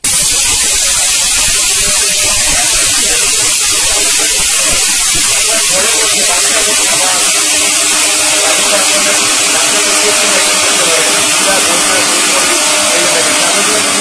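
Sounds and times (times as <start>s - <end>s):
grains hissing in steel jar: 0.0s - 14.0s
mixer grinder whirring: 0.0s - 14.0s.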